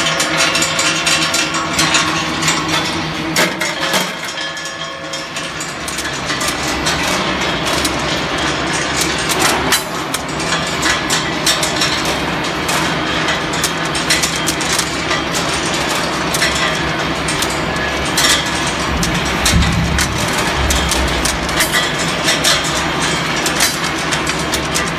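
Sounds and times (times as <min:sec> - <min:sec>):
machine running hum: 0:05.7 - 0:24.9.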